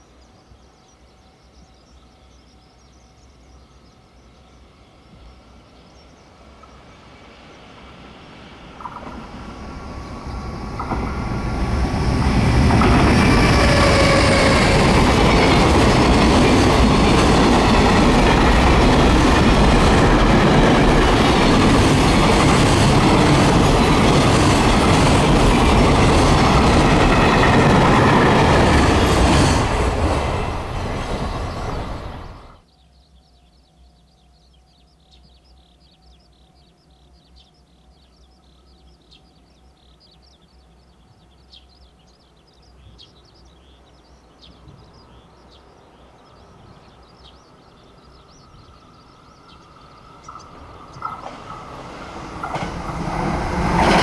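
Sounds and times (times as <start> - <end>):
freight train wheels rumbling: 6.4 - 32.6, 46.0 - 54.0
faint high chirping: 31.2 - 51.6.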